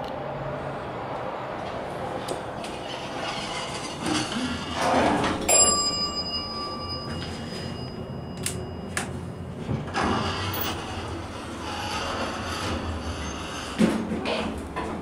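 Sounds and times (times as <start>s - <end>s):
elevator car running noise: 0.0s - 15.0s
elevator bell ringing: 5.4s - 10.9s.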